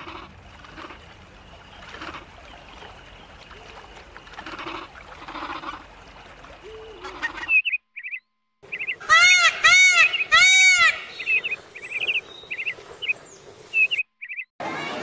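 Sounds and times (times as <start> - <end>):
faint forest background: 0.0 - 15.0.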